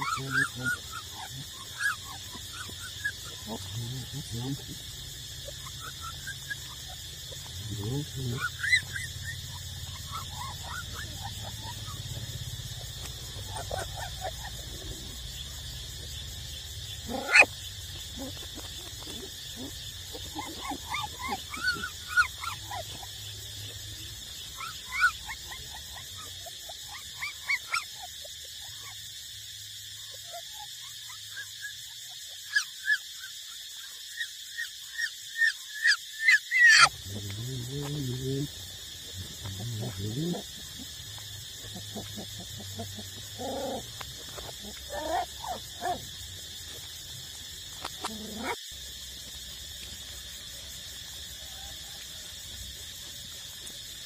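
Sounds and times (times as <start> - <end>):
puppy yelp: 0.0 - 3.6, 5.4 - 7.4, 8.3 - 15.2, 17.0 - 23.1, 24.6 - 29.0, 34.2 - 37.0, 41.6 - 46.1, 47.8 - 48.6
puppies whimpering and squeaking: 0.0 - 4.6, 5.4 - 15.2, 16.9 - 23.7, 24.5 - 28.1, 35.0 - 38.6, 39.2 - 46.1, 47.7 - 48.6.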